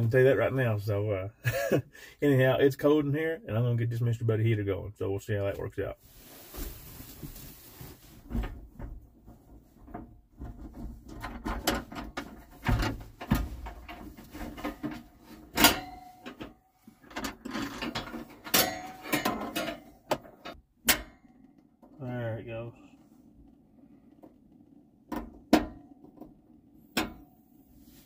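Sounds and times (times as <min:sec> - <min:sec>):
handling knocks and rattles: 0:06.0 - 0:22.0.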